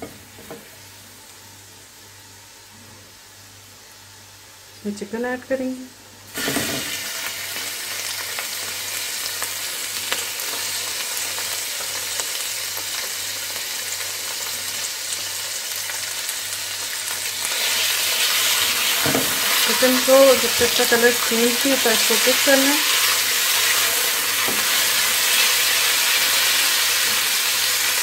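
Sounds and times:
chicken sizzling in hot oil: 6.2s - 28.0s.

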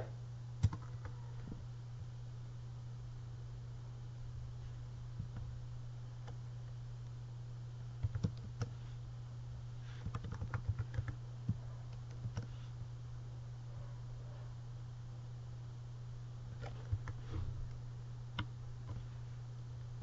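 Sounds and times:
steady low hum: 0.0s - 20.0s
computer keyboard typing: 0.6s - 1.2s, 8.0s - 8.7s, 10.0s - 12.5s, 16.6s - 17.2s.

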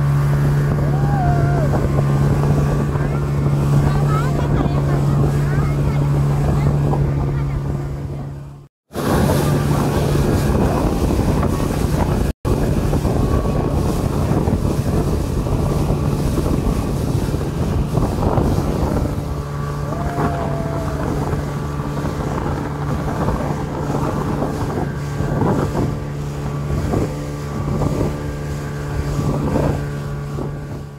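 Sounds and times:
speedboat engine running: 0.0s - 30.9s
water rushing past hull: 0.0s - 30.9s
wind buffeting microphone: 0.0s - 30.9s.

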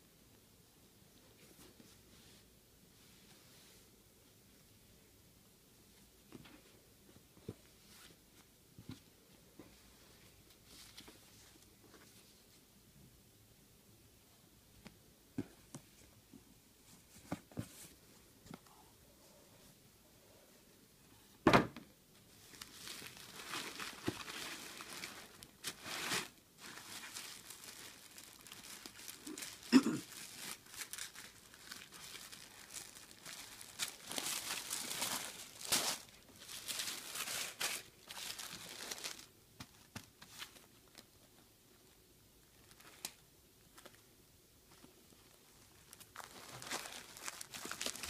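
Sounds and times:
tissue paper rustling and crinkling: 22.3s - 41.1s, 44.7s - 48.0s.

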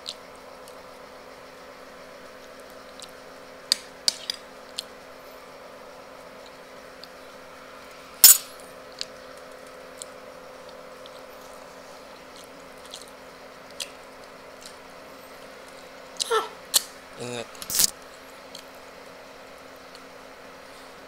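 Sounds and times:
steady low hum: 0.0s - 21.0s
metal spoon clinking on plate: 8.2s - 8.5s.

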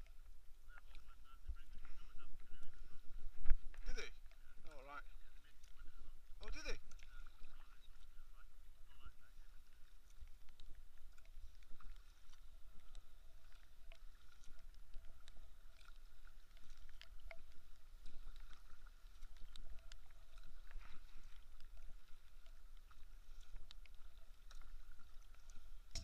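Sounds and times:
paddle splashing in water: 0.2s - 26.0s
water drops ticking: 16.9s - 17.6s.

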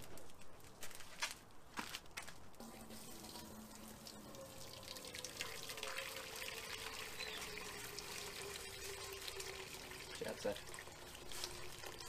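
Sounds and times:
water pouring and splashing: 2.6s - 12.0s.

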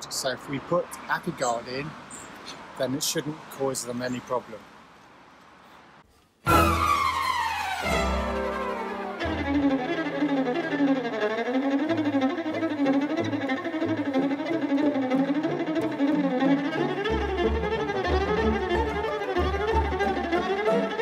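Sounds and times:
low bass notes: 6.5s - 10.5s, 15.0s - 20.5s
fast winding melody: 6.5s - 21.0s.

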